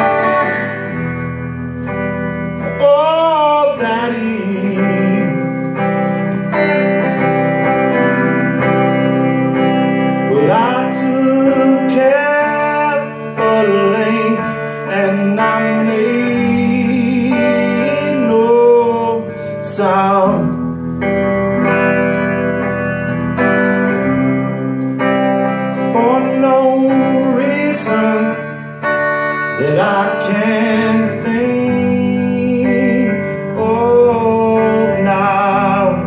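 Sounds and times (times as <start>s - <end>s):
strummed guitar: 0.0s - 36.0s
man singing long held notes: 2.6s - 6.0s, 10.1s - 20.6s, 25.7s - 28.5s, 29.5s - 36.0s.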